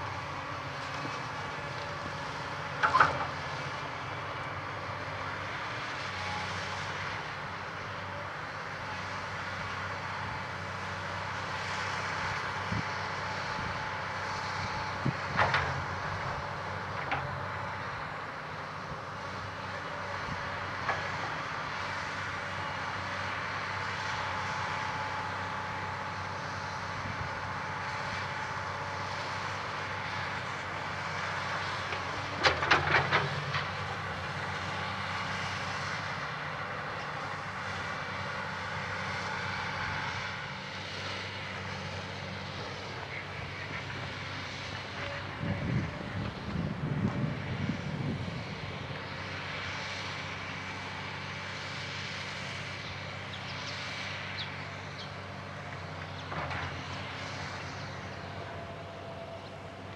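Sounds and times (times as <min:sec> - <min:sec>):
excavator engine drone: 0:00.0 - 0:59.9.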